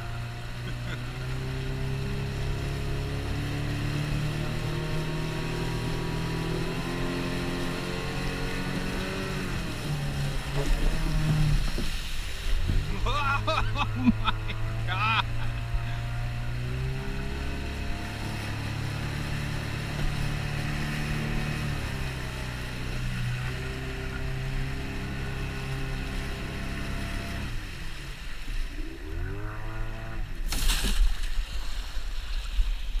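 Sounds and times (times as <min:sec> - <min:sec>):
outboard motor running: 0:00.0 - 0:30.7
canoe hitting sandy shore: 0:30.5 - 0:32.9.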